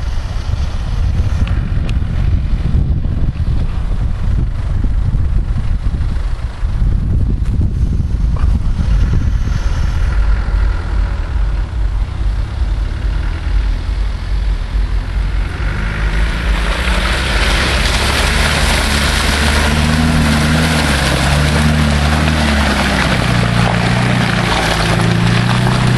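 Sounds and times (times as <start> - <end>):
truck engine revving: 0.0 - 25.9
tyres churning mud and water: 8.2 - 25.9.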